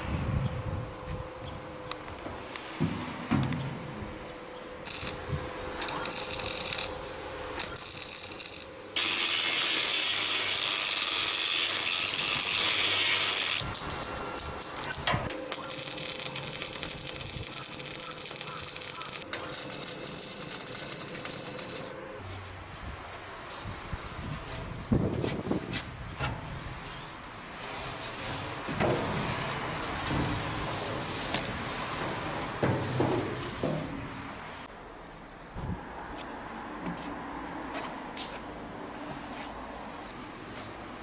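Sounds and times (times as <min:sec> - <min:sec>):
welding arc crackling and hissing: 0:04.8 - 0:22.2, 0:27.4 - 0:33.6.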